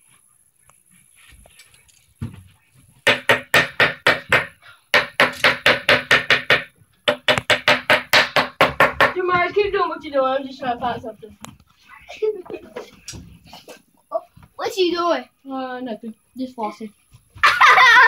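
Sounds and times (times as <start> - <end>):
rapid banging on hard object: 3.0 - 9.8.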